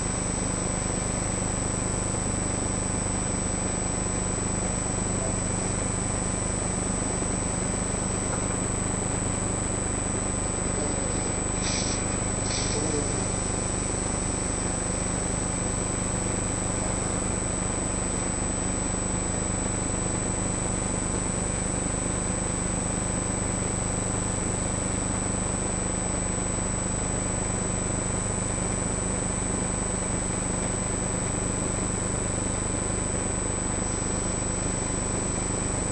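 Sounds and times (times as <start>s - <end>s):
low machine hum with whine: 0.0s - 35.9s
short hissy bursts: 11.6s - 13.2s.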